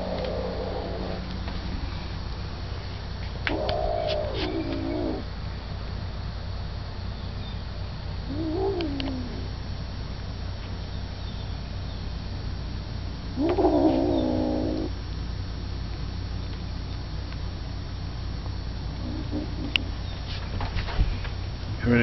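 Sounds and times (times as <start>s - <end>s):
kittens crying: 0.0s - 1.3s, 3.5s - 5.2s, 8.3s - 9.5s, 13.4s - 14.9s
steady low hum: 0.0s - 22.0s.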